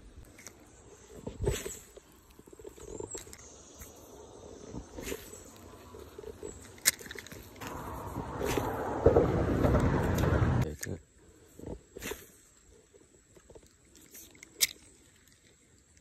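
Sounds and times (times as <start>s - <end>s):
broad rushing noise: 7.6s - 10.6s.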